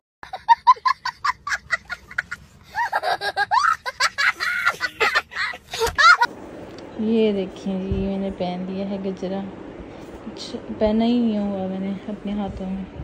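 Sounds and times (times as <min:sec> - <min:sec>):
young child laughing hysterically: 0:00.2 - 0:06.3.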